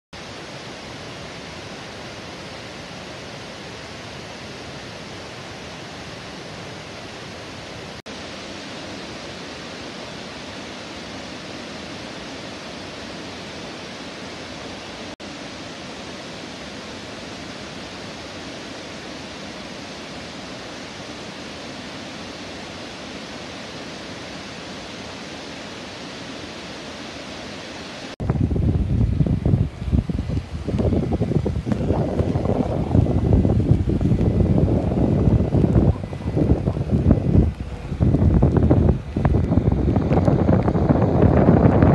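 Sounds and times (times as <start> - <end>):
waterfall rushing: 0.2 - 41.9
wind on microphone: 28.2 - 41.9.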